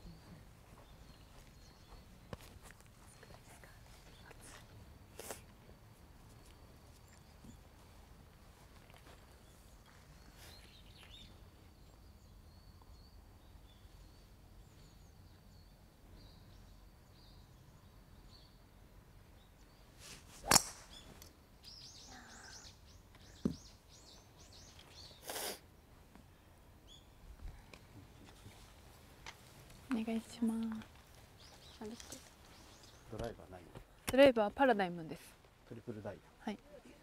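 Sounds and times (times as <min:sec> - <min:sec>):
faint outdoor background: 0:00.0 - 0:37.0
golf club striking ball: 0:20.4 - 0:21.1.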